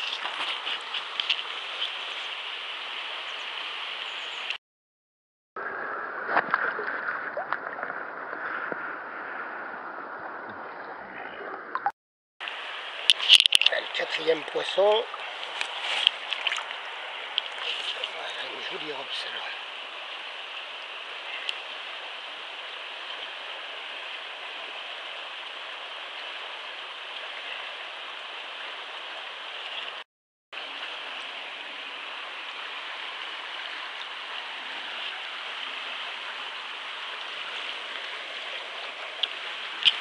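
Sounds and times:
river rushing: 0:00.0 - 0:04.4, 0:12.4 - 0:29.9, 0:30.6 - 0:40.0
sharp splashes: 0:15.0 - 0:19.0.

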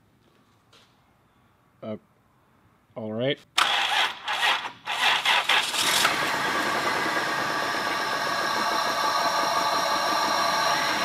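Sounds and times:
car engine cranking and idling: 0:03.6 - 0:11.0.

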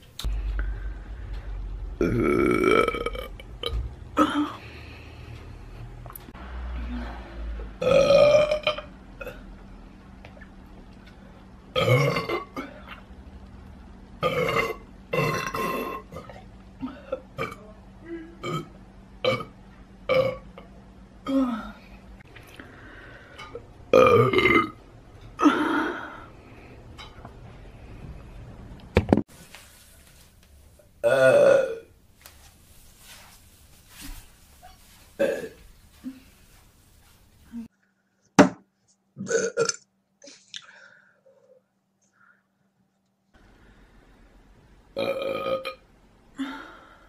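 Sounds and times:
woman burping loudly: 0:02.0 - 0:04.6, 0:07.8 - 0:09.4, 0:11.7 - 0:12.8, 0:14.2 - 0:17.6, 0:18.3 - 0:20.6, 0:23.9 - 0:24.8, 0:31.0 - 0:31.9, 0:35.2 - 0:36.2, 0:39.2 - 0:39.8, 0:45.0 - 0:45.8.

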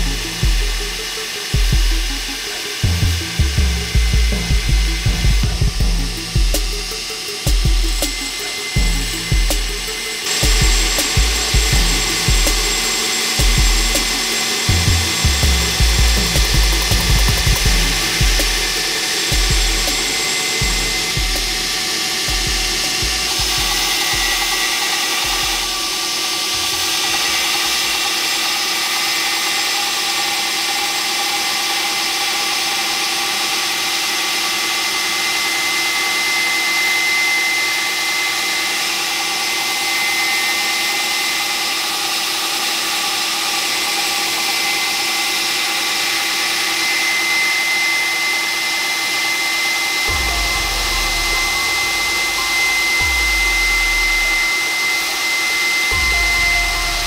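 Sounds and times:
belt grinder grinding steel: 0:00.0 - 0:57.0
thin constant whine: 0:49.6 - 0:57.0.

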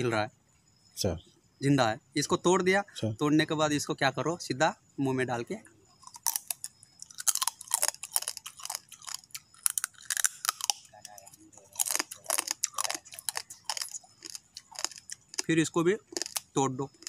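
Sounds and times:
crab shell crunching in mouth: 0:06.0 - 0:10.9, 0:11.6 - 0:15.5, 0:16.1 - 0:17.0.

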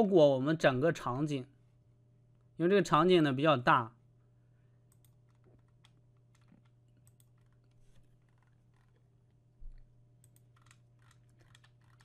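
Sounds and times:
low electrical hum: 0:00.0 - 0:12.0
keyboard and mouse clicks: 0:04.9 - 0:09.0, 0:09.7 - 0:12.0.

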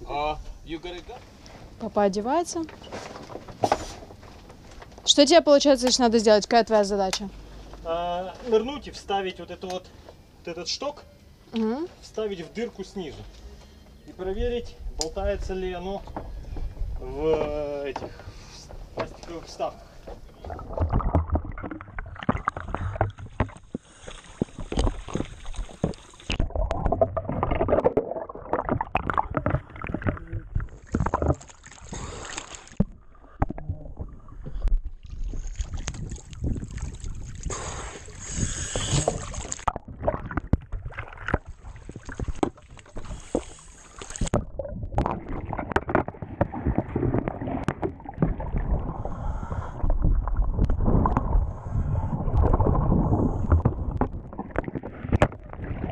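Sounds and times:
water sloshing and splashing: 0:02.4 - 0:05.0, 0:15.6 - 0:55.9.

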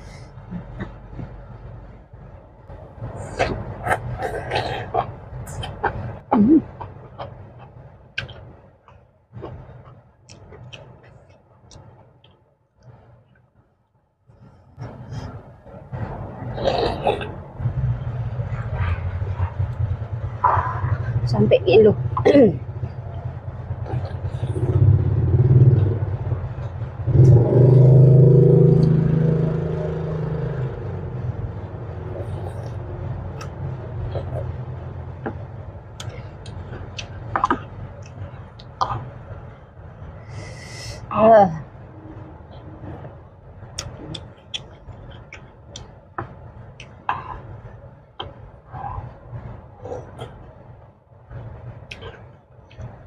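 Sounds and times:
person chewing food: 0:06.8 - 0:12.3
vehicle engine humming: 0:14.6 - 0:53.0.

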